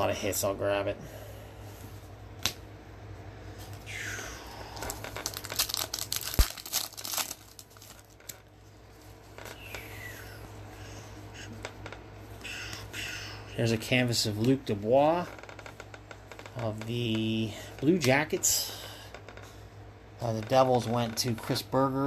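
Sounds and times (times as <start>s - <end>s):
steady low hum: 0.0s - 22.0s
foil wrappers crinkling and tearing: 4.7s - 8.5s.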